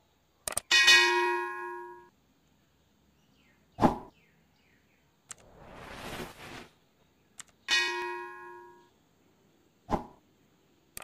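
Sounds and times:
whoosh: 0:05.3 - 0:06.7
bell ding: 0:07.7 - 0:08.9.

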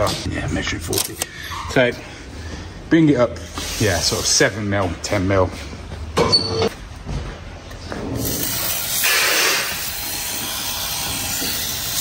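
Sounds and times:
aerosol spray can hissing: 0:08.3 - 0:11.5.

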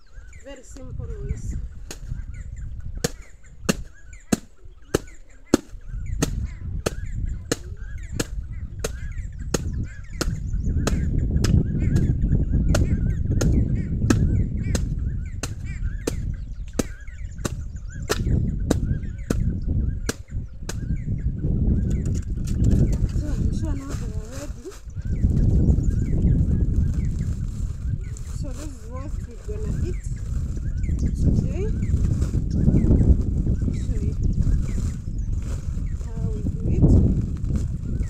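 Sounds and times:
wooden stick beating a sack: 0:03.0 - 0:19.5.

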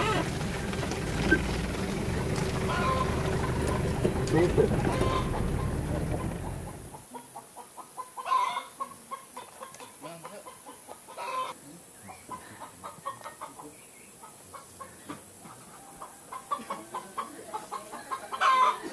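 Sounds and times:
low rumble: 0:00.0 - 0:07.0
chickens clucking: 0:00.0 - 0:18.9.

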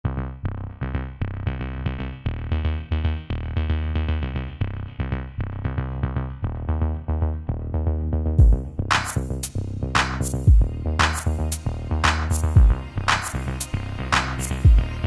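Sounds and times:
deep pulsing bass: 0:00.0 - 0:15.0
synthesizer notes: 0:06.5 - 0:15.0.

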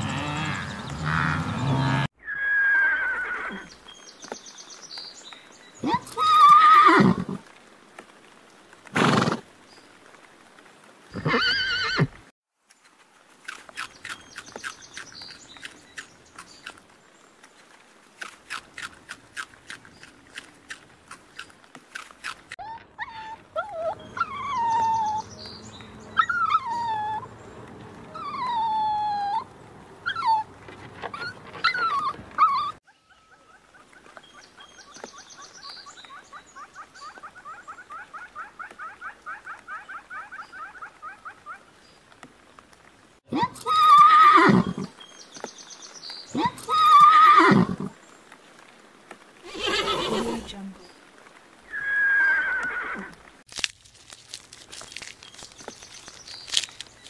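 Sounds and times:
whining animal calls: 0:00.0 - 0:03.7, 0:22.6 - 0:27.3, 0:28.1 - 0:34.1
rabbits chewing greens: 0:12.9 - 0:22.6, 0:53.5 - 0:57.0.

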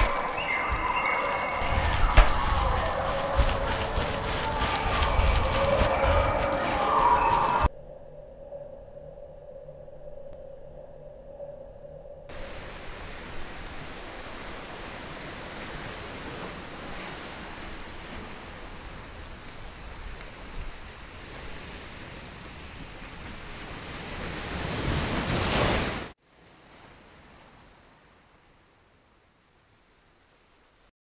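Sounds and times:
steady rushing noise: 0:00.0 - 0:07.7.

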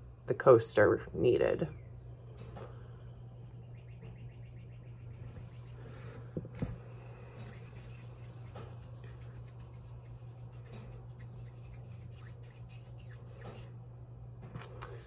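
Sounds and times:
steady low hum: 0:00.0 - 0:15.0
hands rubbing clay: 0:07.0 - 0:13.8.

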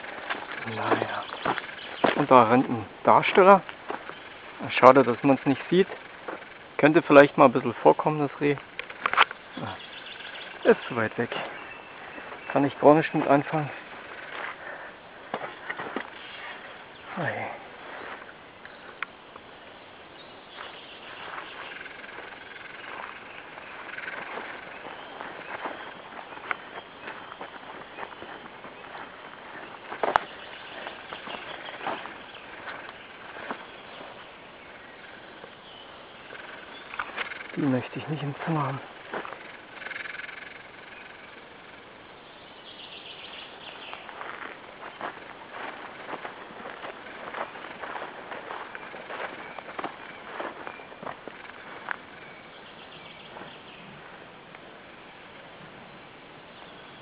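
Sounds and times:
footsteps brushing through grass: 0:00.0 - 0:06.7, 0:07.6 - 0:19.0, 0:20.4 - 0:35.6, 0:36.2 - 0:40.4, 0:43.6 - 0:52.4
faint high chirping calls: 0:00.0 - 0:57.0
steady background hiss: 0:00.0 - 0:57.0.

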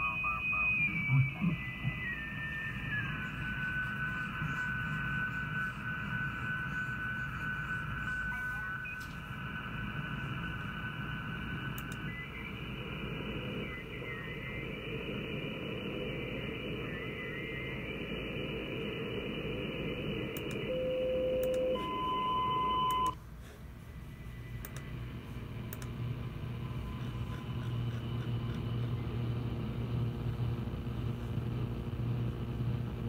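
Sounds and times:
radio static: 0:00.0 - 0:22.0
low hum: 0:00.0 - 0:33.0
steady low tone: 0:00.0 - 0:33.0.

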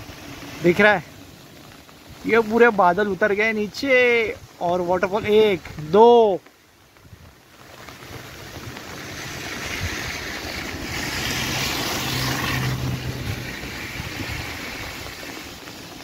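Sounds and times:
car driving past: 0:08.2 - 0:15.6.

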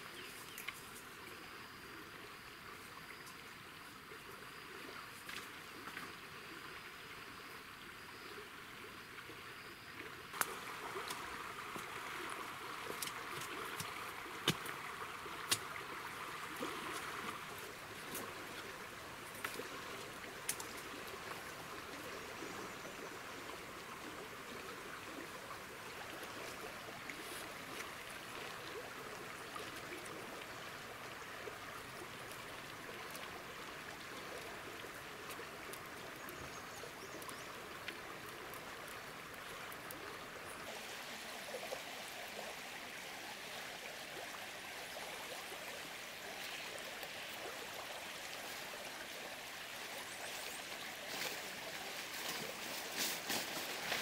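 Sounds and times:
river flowing: 0:00.0 - 0:54.0.

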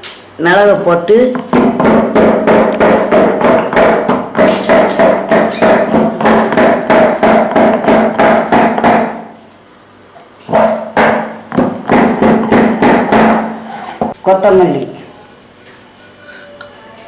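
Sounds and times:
stone pestle pounding in mortar: 0:01.2 - 0:09.3, 0:10.5 - 0:14.2.

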